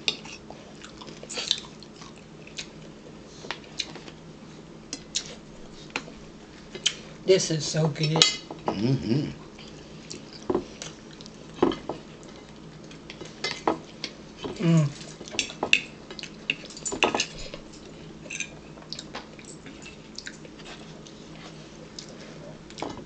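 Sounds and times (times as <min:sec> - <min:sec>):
chewing and mouth sounds: 0:00.1 - 0:04.2, 0:04.9 - 0:06.1, 0:09.4 - 0:14.2, 0:18.8 - 0:22.9.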